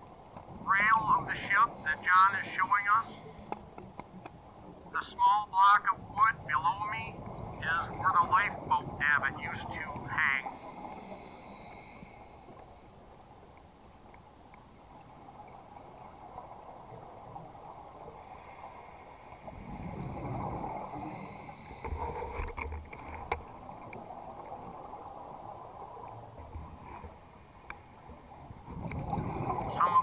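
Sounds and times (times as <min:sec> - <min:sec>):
underwater breathing hiss: 0:10.5 - 0:12.9, 0:18.2 - 0:22.4.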